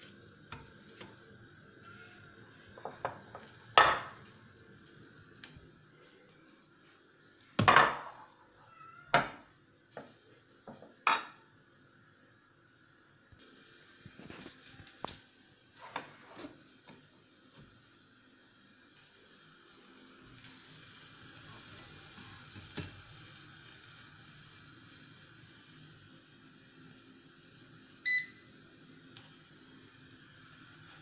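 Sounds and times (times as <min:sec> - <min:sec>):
glass dish clunking on stone worktop: 0:03.8 - 0:04.1, 0:10.7 - 0:11.4.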